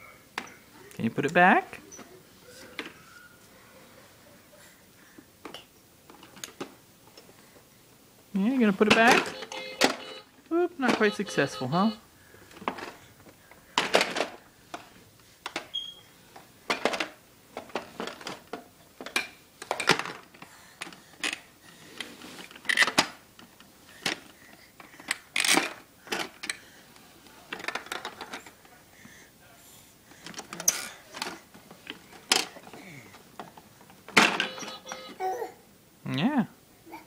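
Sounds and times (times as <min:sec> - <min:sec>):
plastic toy clattering: 0:08.8 - 0:10.2, 0:13.8 - 0:14.9, 0:16.7 - 0:21.4, 0:22.5 - 0:26.6, 0:27.5 - 0:28.6, 0:30.2 - 0:32.8.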